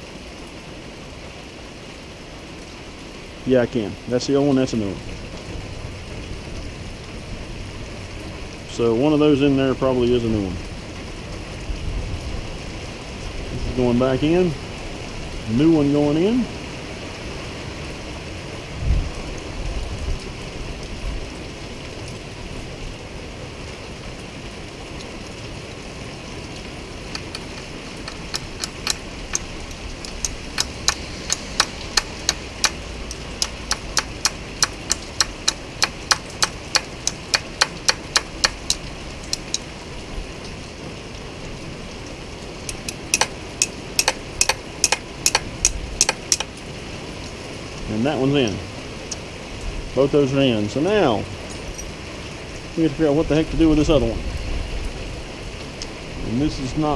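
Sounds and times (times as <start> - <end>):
light metallic taps: 27.1 - 39.6, 42.7 - 46.6.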